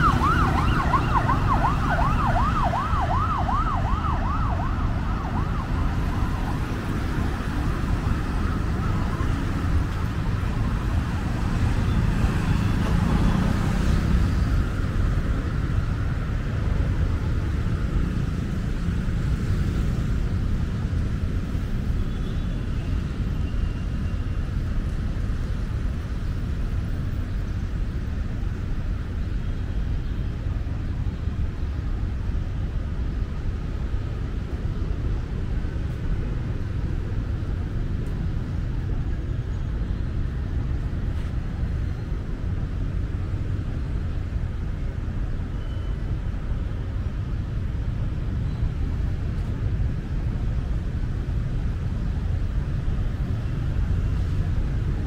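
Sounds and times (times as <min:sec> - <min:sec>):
emergency siren wailing: 0:00.0 - 0:17.0
city street traffic: 0:00.0 - 0:55.0.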